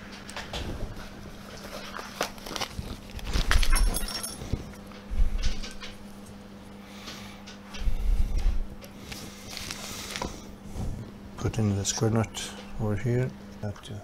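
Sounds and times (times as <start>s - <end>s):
plastic bag rustling: 0.9s - 4.8s
screws and nuts clinking: 3.6s - 4.5s
metallic jingle: 3.7s - 4.4s.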